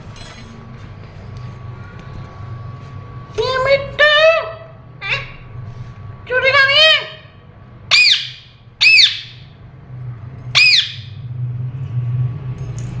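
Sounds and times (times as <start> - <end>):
parakeet squawks: 7.9 - 9.4, 10.6 - 11.0.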